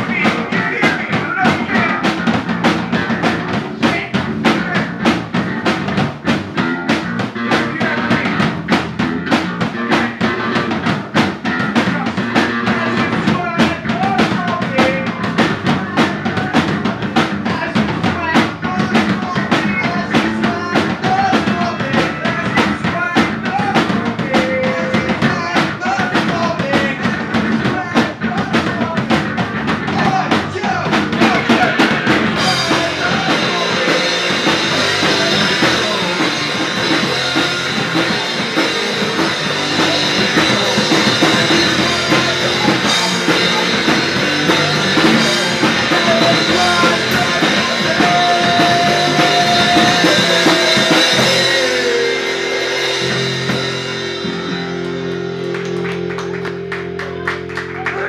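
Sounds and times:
person singing: 0.0 - 2.3, 7.4 - 8.6, 11.7 - 54.6
drum kit: 0.0 - 58.0
electric guitar: 0.0 - 58.0.

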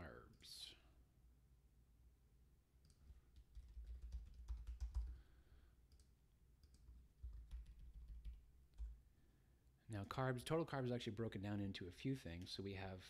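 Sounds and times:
computer keyboard typing: 2.8 - 5.2, 5.9 - 9.0.

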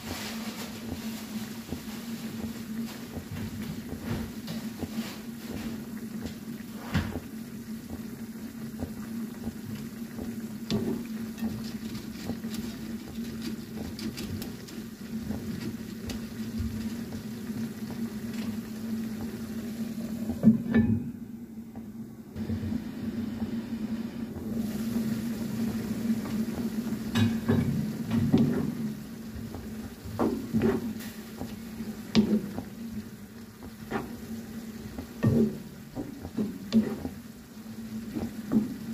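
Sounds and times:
broth simmering and bubbling: 0.0 - 38.9
steady low hum: 0.0 - 38.9
spatula scraping a pan: 33.9 - 34.3, 36.7 - 37.2.

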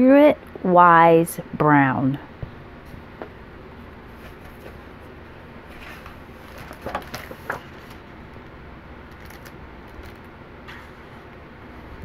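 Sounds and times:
book pages crinkling and tapping: 5.7 - 8.5, 9.1 - 10.8.

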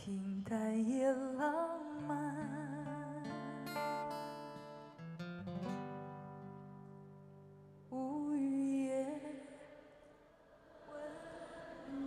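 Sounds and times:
woman singing: 0.0 - 4.0, 7.9 - 10.0, 10.8 - 12.0
acoustic guitars playing: 2.1 - 8.0.

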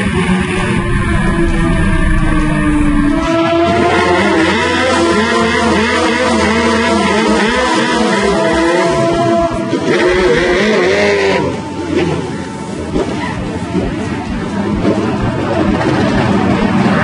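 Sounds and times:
heavy wind noise: 0.0 - 4.2
motorcycle engine revving: 0.0 - 17.0.

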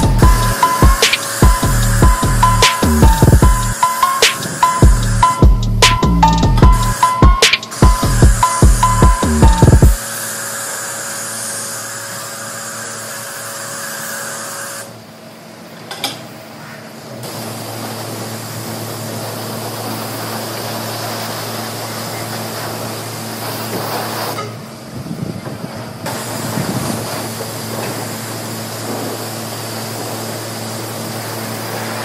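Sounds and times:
low pump hum: 0.0 - 3.8, 7.8 - 10.0
hiss of water spray: 10.0 - 14.8, 17.3 - 24.4, 26.1 - 32.0.

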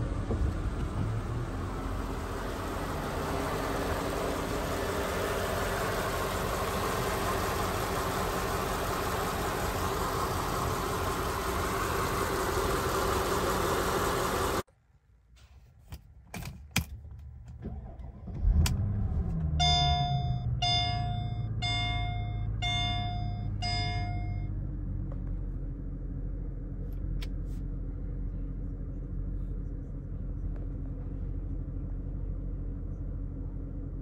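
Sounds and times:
car engine starting and idling: 0.0 - 14.7, 16.2 - 34.0
dashboard warning chimes: 19.6 - 24.6.

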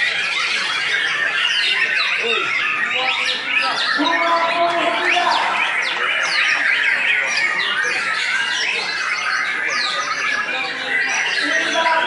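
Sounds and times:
songbirds singing in chorus: 0.0 - 12.0.

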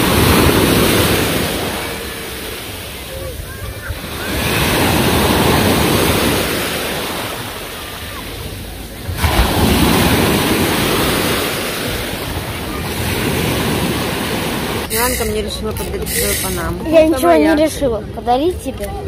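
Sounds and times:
small waves breaking on shore: 0.0 - 15.2.

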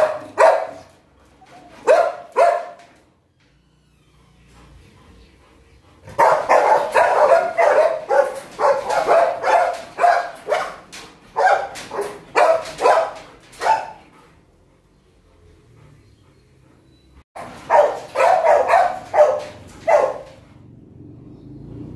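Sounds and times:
dogs barking rapidly: 0.0 - 3.1, 6.0 - 14.3, 17.4 - 20.7.

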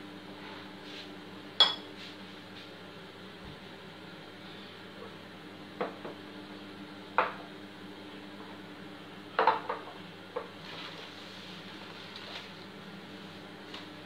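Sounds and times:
microwave oven humming: 0.0 - 14.0
glass and kitchenware clinking: 1.6 - 1.9.

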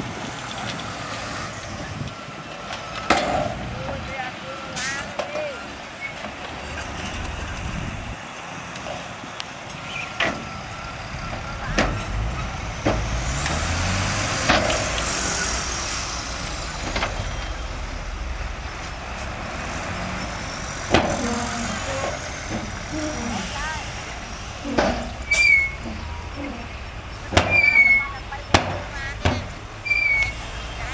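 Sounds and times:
diesel truck engines running: 0.0 - 30.9
engine revving: 10.2 - 30.9
knocks and clunks: 11.2 - 15.3, 16.6 - 17.6, 18.3 - 23.4, 24.1 - 30.9.

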